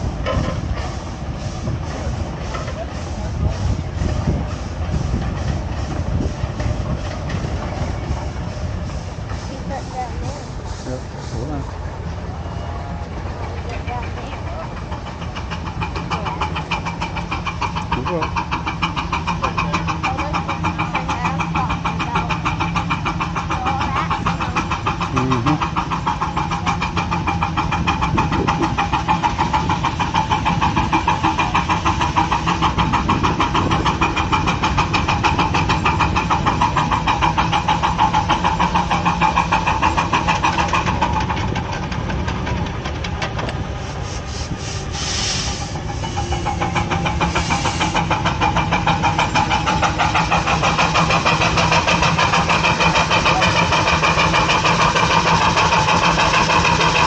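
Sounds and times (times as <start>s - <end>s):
truck engine running: 0.0s - 57.0s
brief hissing bursts: 43.8s - 46.2s, 47.2s - 48.1s.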